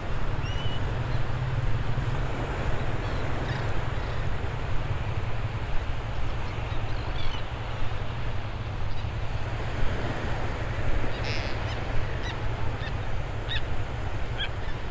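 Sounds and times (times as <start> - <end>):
low surf: 0.0 - 14.9
faint shorebird calls: 11.1 - 14.9.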